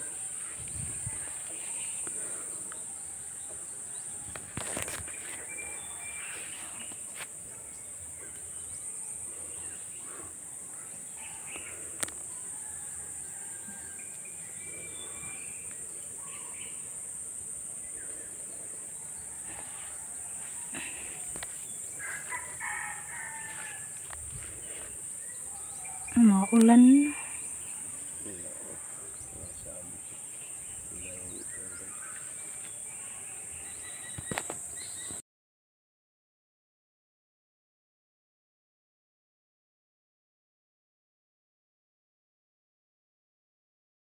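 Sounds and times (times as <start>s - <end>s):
high-pitched insect drone: 11.1s - 35.2s.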